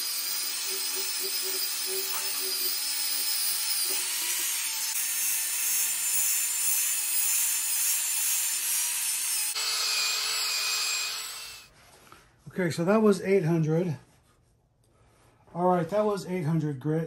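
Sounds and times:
angle grinder motor whine: 0.0s - 11.7s.

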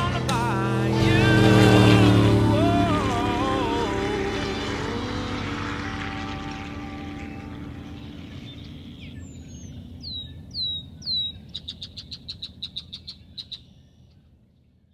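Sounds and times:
low drone: 0.0s - 10.0s
bird whistles and calls: 8.4s - 14.1s.

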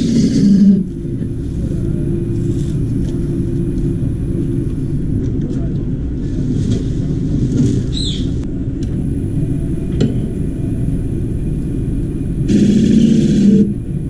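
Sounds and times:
wood lathe rumble: 0.0s - 3.4s, 12.5s - 13.8s
faint high motor whine: 0.0s - 14.0s.

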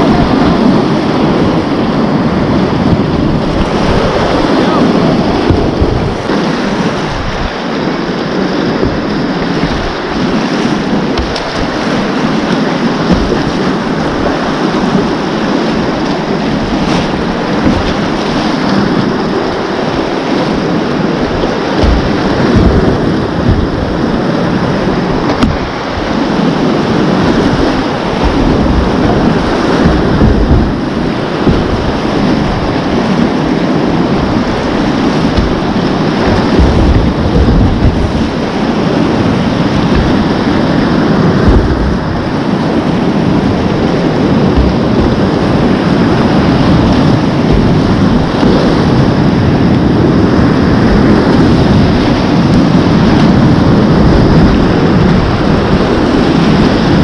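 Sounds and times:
whitewater rapids roaring: 0.0s - 57.0s
wind buffeting on microphone: 0.0s - 57.0s.

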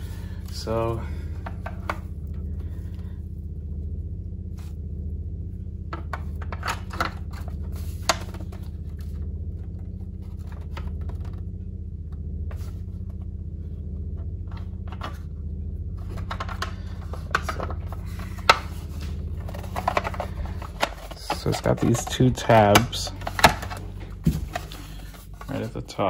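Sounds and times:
steady low hum: 0.0s - 26.0s
plastic parts clicking: 16.0s - 25.6s.

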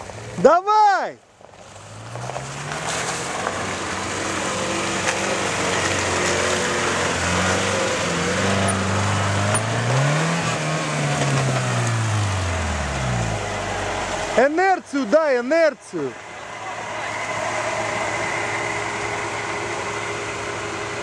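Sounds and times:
car engine revving hard: 2.0s - 14.6s.

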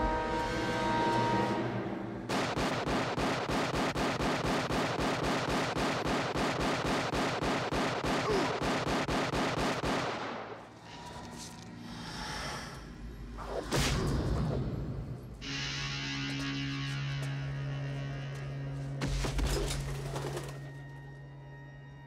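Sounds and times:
automatic rifle fire: 2.3s - 10.6s.

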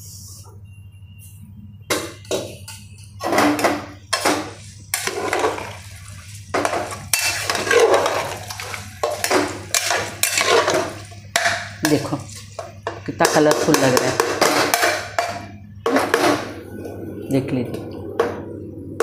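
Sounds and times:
low steady hum: 0.0s - 19.0s
spoon scraping metal pot: 2.2s - 5.8s, 6.5s - 16.5s.

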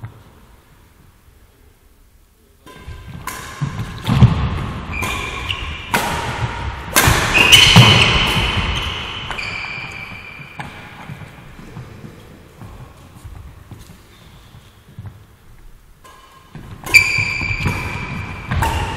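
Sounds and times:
rackets striking shuttlecock: 2.6s - 11.3s, 16.0s - 18.9s
shoes squeaking on court floor: 2.7s - 6.5s, 7.1s - 18.9s.

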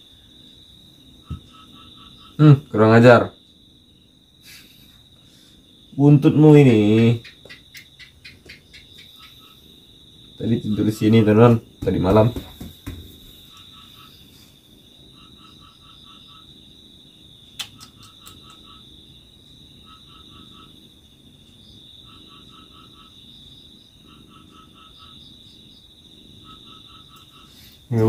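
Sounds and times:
high insect trill: 0.0s - 28.0s
frog calling: 1.2s - 3.4s, 5.8s - 21.0s, 21.6s - 28.0s
sharp click: 17.6s - 18.6s.

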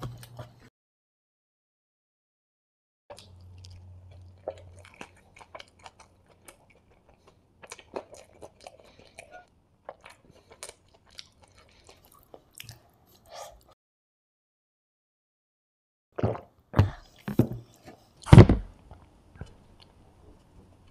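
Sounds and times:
person chewing food: 0.0s - 0.7s, 3.1s - 13.8s.

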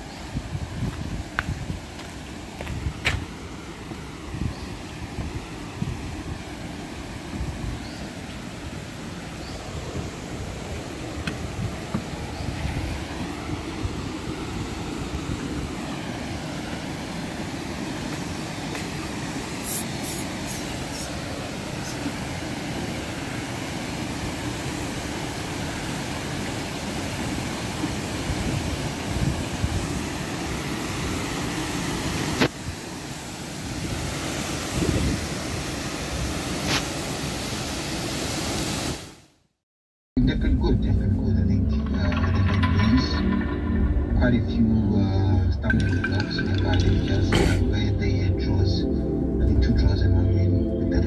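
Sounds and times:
waterfall rushing into pool: 0.0s - 39.3s, 45.7s - 47.6s
wind buffeting microphone: 0.2s - 3.3s, 9.6s - 15.8s, 28.2s - 30.2s, 33.7s - 36.5s.

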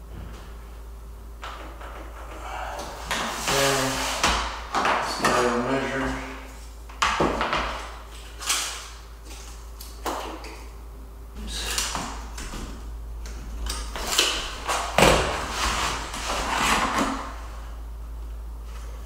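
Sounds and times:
tools scraping on vinyl floor: 3.0s - 6.2s, 14.7s - 17.4s.

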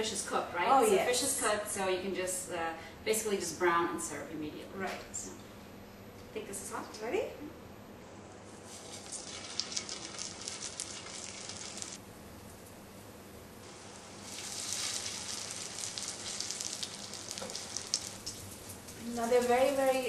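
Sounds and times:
patties sizzling in hot oil: 8.6s - 12.8s, 13.6s - 20.0s.

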